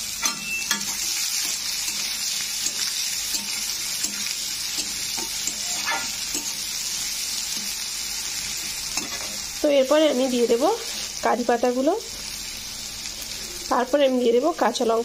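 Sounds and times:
onions sizzling in oil: 0.0 - 15.0
spatula scraping pan: 0.8 - 6.6.

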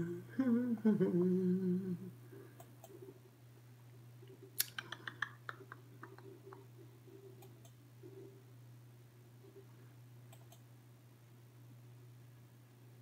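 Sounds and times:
faint electrical hum: 0.0 - 13.0
small sharp clicks: 4.6 - 6.6.

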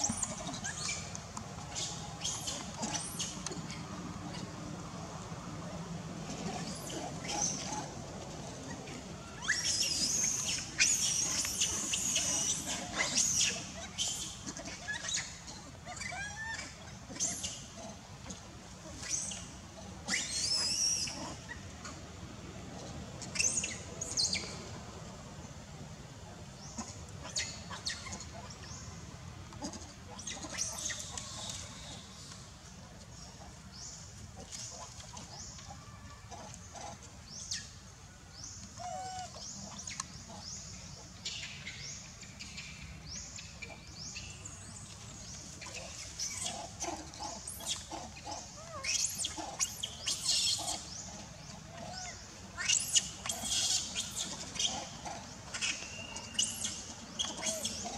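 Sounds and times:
monkeys squealing and screeching: 9.4 - 17.5, 20.0 - 21.4, 45.6 - 51.1, 51.8 - 57.9.

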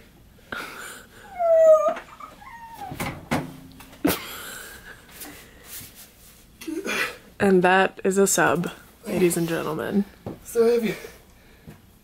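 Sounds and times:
speaker knocking and bumping: 2.9 - 3.9.

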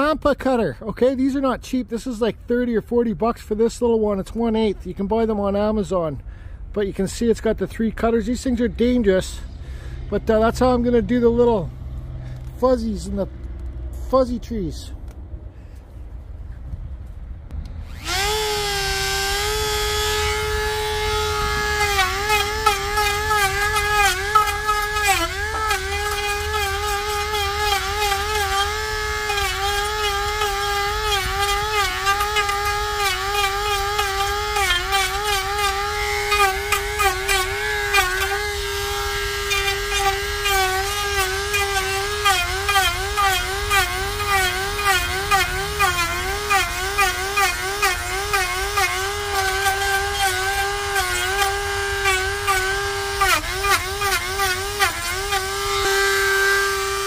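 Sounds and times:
rotary tool cutting wood: 17.6 - 57.0.

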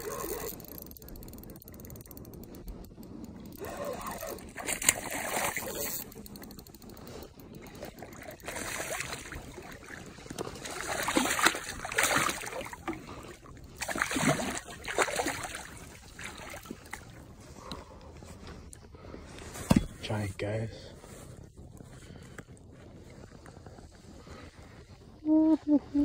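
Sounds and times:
fish splashing in water: 4.0 - 6.2, 7.7 - 17.2.

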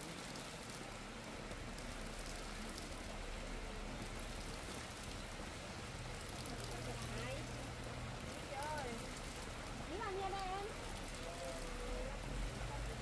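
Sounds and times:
light rain pattering: 0.0 - 13.0.

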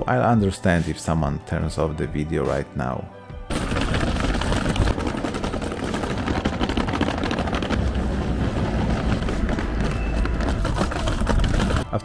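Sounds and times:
suitcase wheels rattling over cobblestones: 3.5 - 12.0.

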